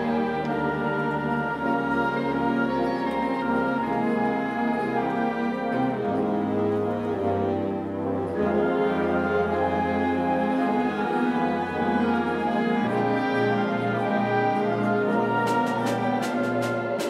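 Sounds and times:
concert band playing: 0:15.4 - 0:17.0.

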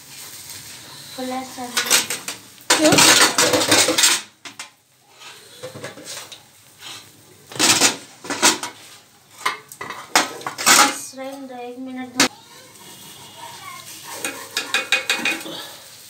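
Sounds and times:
steel kitchenware knocking and scraping: 0:01.7 - 0:04.7, 0:09.4 - 0:11.1, 0:14.1 - 0:15.6.

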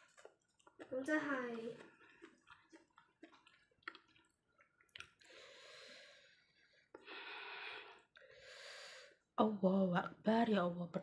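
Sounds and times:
person breathing hard through mouth: 0:05.2 - 0:09.2.

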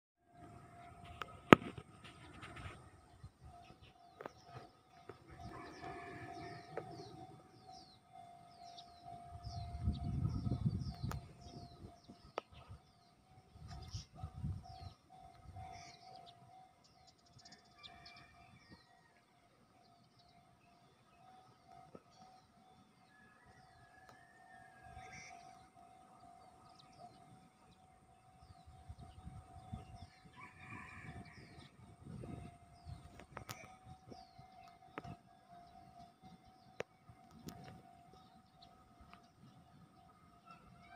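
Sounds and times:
faint siren-like tone: 0:00.2 - 0:40.9
wind buffeting microphone: 0:09.0 - 0:15.8, 0:28.4 - 0:35.3.

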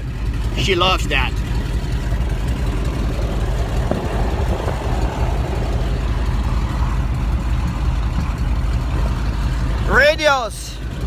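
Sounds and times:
radial aircraft engine running: 0:00.0 - 0:11.0.

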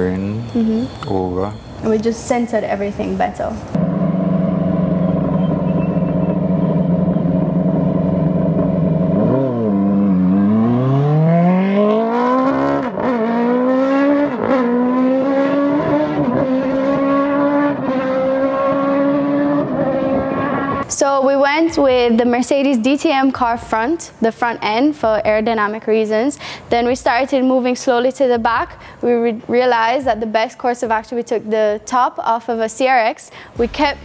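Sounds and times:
race car engine revving and accelerating: 0:03.8 - 0:20.8.

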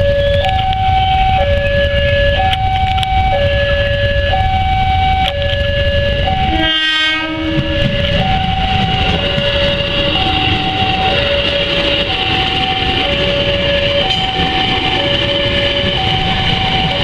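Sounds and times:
electric train passing: 0:00.0 - 0:17.0
level-crossing alarm ringing: 0:00.0 - 0:17.0
train horn: 0:06.3 - 0:17.0.

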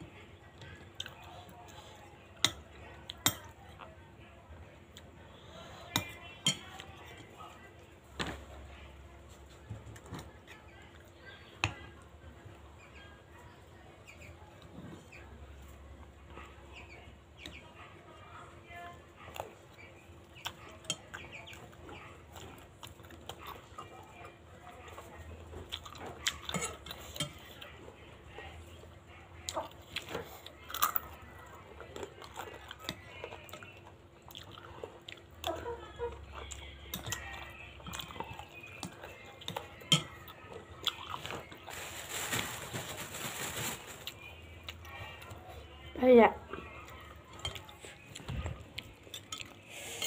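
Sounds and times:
utensil clinking against a bowl: 0:36.4 - 0:41.3.

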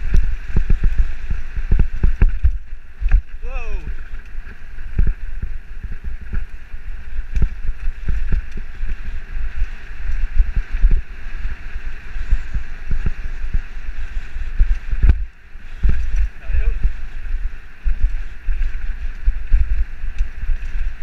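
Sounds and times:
bike knocking and rattling: 0:00.0 - 0:11.5
wind buffeting microphone: 0:00.0 - 0:21.0.

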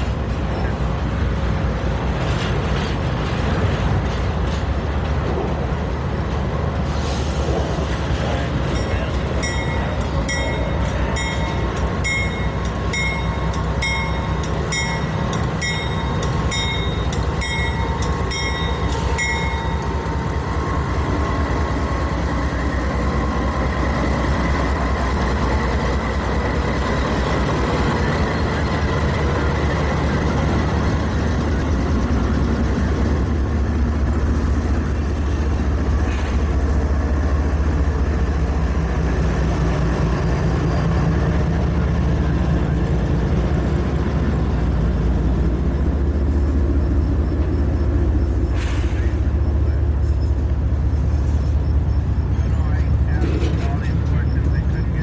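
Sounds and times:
diesel locomotive engine rumble: 0:00.0 - 0:55.0
locomotive bell ringing: 0:08.5 - 0:20.4.

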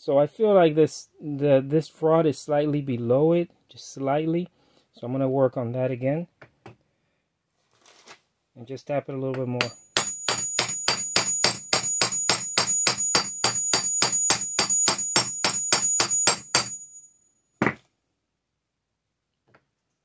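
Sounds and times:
hammer tapping metal with ringing: 0:09.3 - 0:17.8.

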